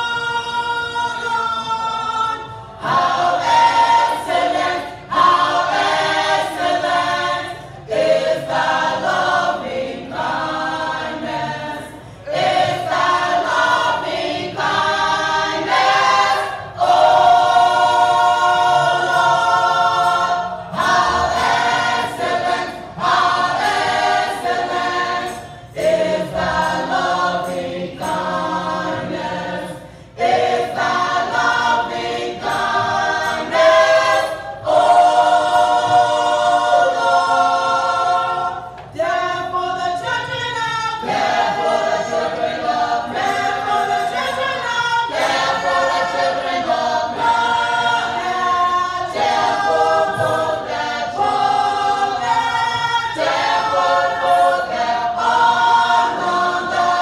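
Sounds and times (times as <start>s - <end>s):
gospel choir singing: 0.0s - 57.0s
choir breaths: 11.8s - 12.8s, 29.6s - 30.4s.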